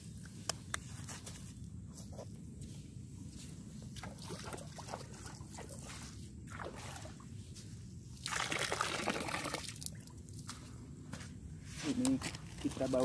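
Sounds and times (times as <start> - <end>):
water pouring into sea: 8.2 - 10.1.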